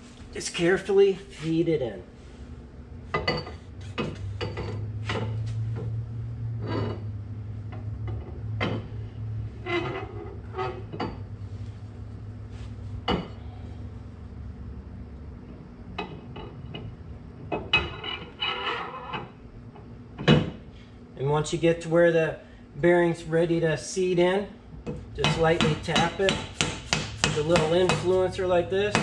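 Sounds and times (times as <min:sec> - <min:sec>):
low steady hum: 0:00.0 - 0:29.0
metal clinks knocks and scrapes: 0:03.1 - 0:06.0, 0:09.6 - 0:11.4, 0:17.5 - 0:19.4.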